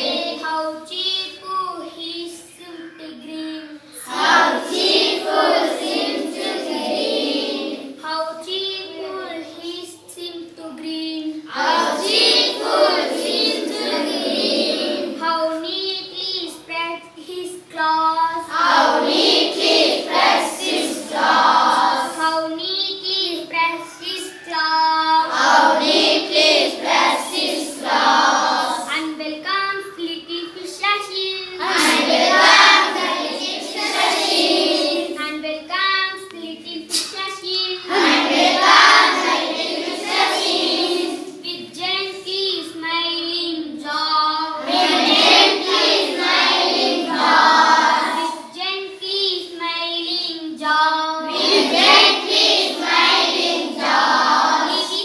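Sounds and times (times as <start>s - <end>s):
boys singing in unison: 0.0s - 0.8s, 4.0s - 8.0s, 11.5s - 15.3s, 18.2s - 22.5s, 24.0s - 28.9s, 31.6s - 35.2s, 36.8s - 41.7s, 43.9s - 48.4s, 50.7s - 55.0s.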